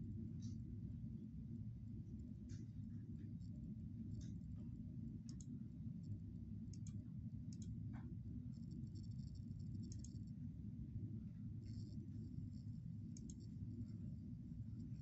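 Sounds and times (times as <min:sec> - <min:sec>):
steady low hum: 0:00.0 - 0:15.0
faint sharp clicks: 0:05.3 - 0:05.5, 0:09.8 - 0:10.2.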